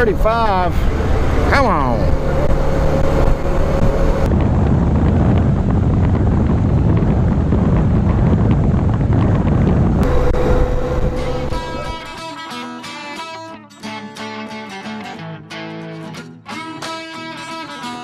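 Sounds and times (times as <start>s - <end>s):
motorcycle engine: 0.0s - 12.2s
road noise: 0.0s - 12.2s
wind rushing over microphone: 0.0s - 12.2s.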